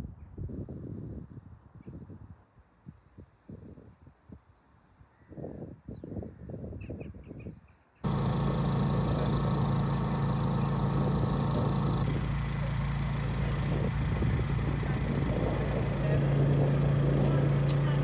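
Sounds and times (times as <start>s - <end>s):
diesel engines idling: 8.0s - 18.0s.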